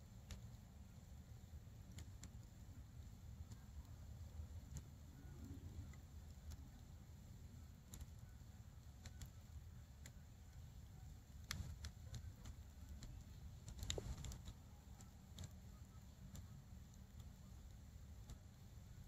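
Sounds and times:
embers crackling and popping: 0.2 - 19.0.

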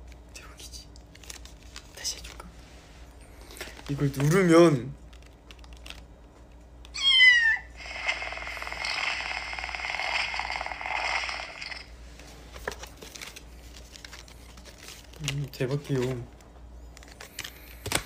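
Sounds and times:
electronic meow: 6.9 - 9.0.

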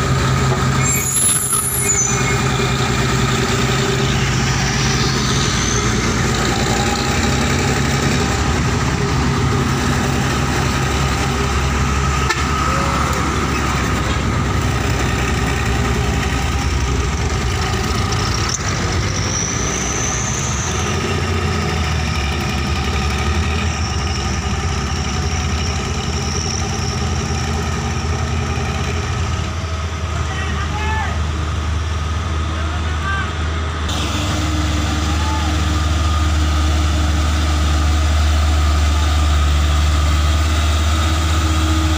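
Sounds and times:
diesel truck engines rumbling: 0.0 - 41.9.

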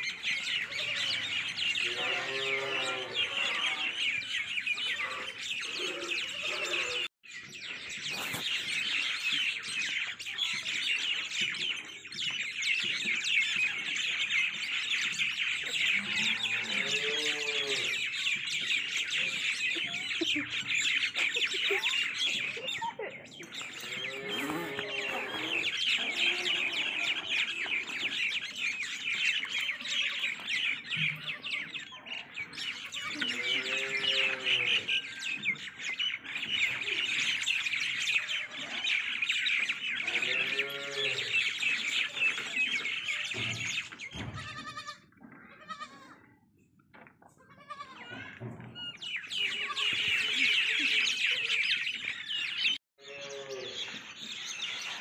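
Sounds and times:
small birds chirping: 0.0 - 55.0
rising and falling bird calls: 23.3 - 44.9.

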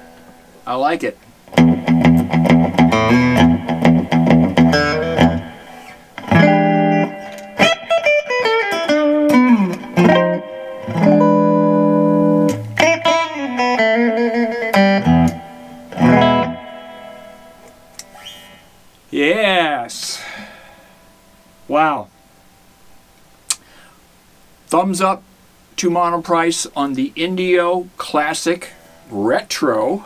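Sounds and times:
electric guitar playing: 1.5 - 18.8.

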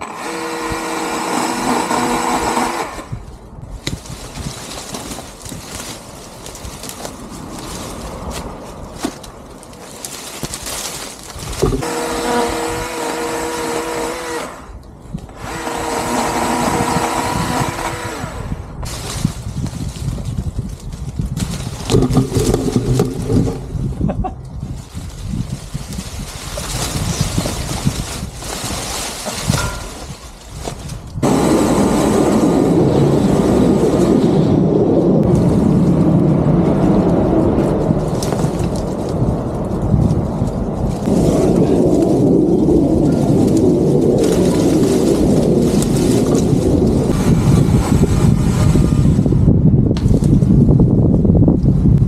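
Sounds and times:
electric chainsaw whining: 0.0 - 3.2, 11.7 - 18.8.

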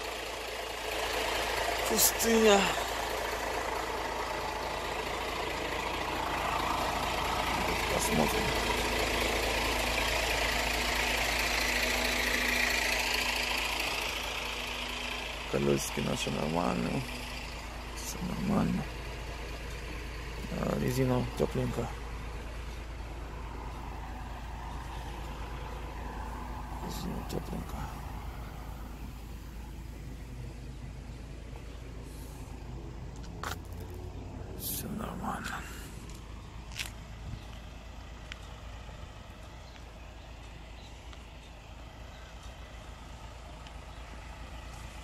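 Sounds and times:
truck diesel engine idling: 0.0 - 45.0.

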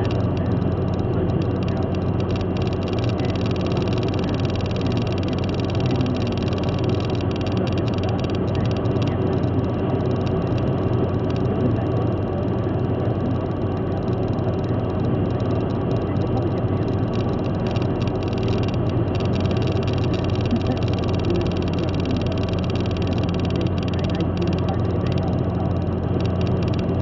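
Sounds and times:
car road and engine drone: 0.0 - 27.0.

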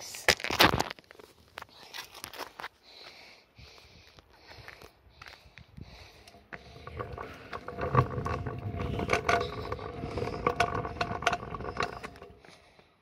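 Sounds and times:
skateboard wheels rolling on pavement: 6.4 - 12.6.

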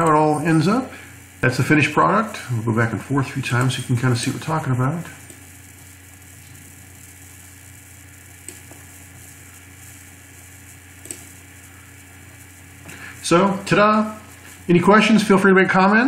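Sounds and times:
room tone hum and hiss: 0.0 - 16.0
computer mouse clicks: 11.0 - 11.3.

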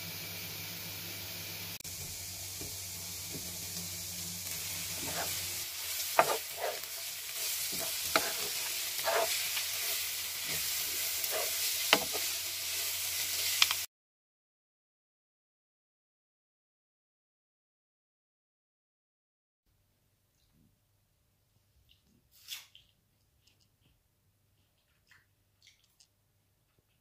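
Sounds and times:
vegetables sizzling in a pan: 0.0 - 13.9
spatula scraping a pan: 4.4 - 13.9.

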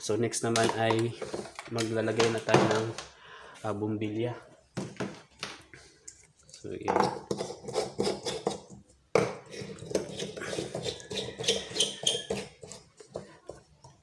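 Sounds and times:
light bulbs scraping and clicking: 9.6 - 13.2.

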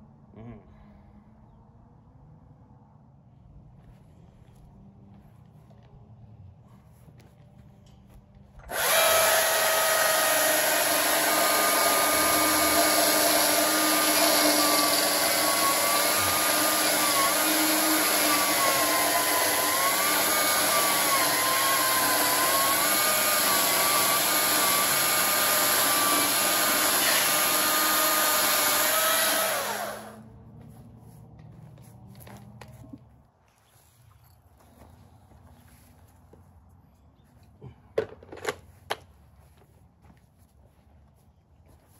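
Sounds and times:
chainsaw cutting log: 8.6 - 30.2.

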